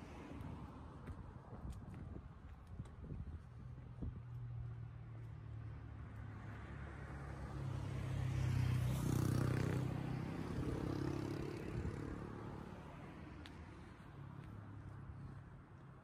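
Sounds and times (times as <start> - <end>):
car driving past: 5.8 - 13.8.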